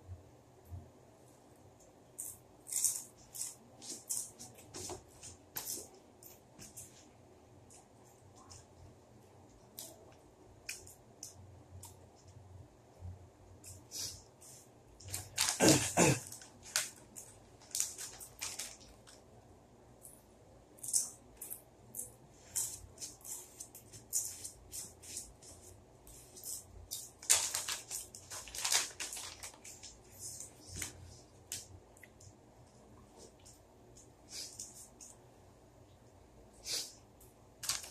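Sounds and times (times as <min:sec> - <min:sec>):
plastic bag crinkling: 0:15.0 - 0:19.2, 0:27.0 - 0:30.9, 0:37.6 - 0:37.9.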